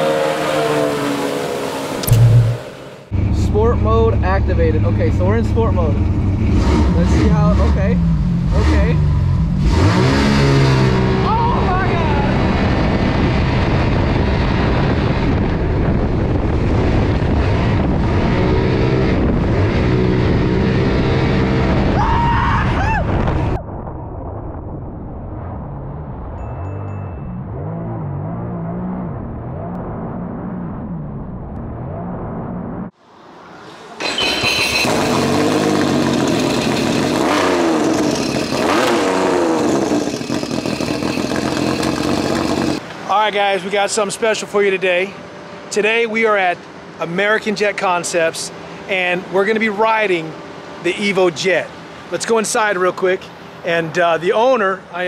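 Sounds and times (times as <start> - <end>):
jet-kart engine revving: 0.0 - 15.0, 34.0 - 42.9
jet kart engine and jet noise: 0.0 - 23.6, 28.6 - 54.0
wind buffeting microphone: 11.7 - 22.0.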